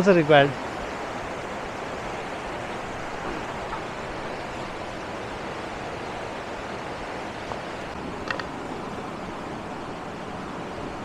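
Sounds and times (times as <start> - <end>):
river rushing over rocks: 0.0 - 11.0.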